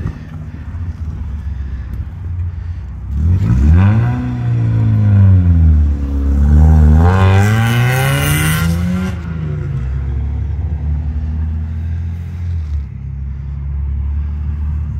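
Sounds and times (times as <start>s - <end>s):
steady low rumble: 0.0s - 7.0s
car engine accelerating: 2.6s - 14.9s.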